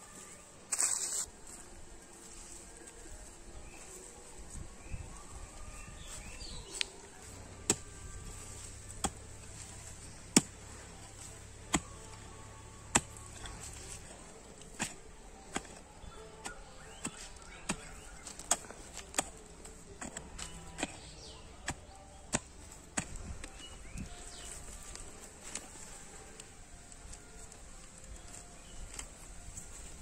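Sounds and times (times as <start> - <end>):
hoe chopping into hard soil: 7.2 - 12.2, 12.8 - 15.8, 16.8 - 25.7.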